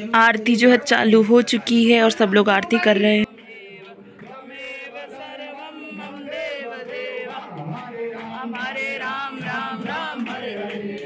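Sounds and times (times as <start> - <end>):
hand clapping: 2.7 - 11.0
group singing a hymn: 3.2 - 11.0.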